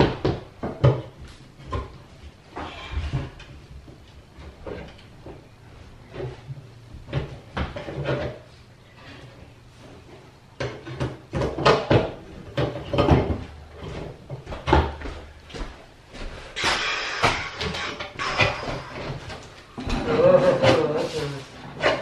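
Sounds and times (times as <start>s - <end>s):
wood creaking: 16.6s - 20.9s.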